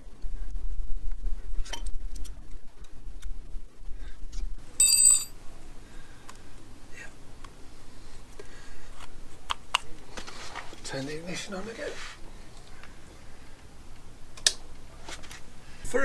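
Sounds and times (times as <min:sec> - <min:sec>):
metal tool clinking on metal: 0:04.8 - 0:05.4.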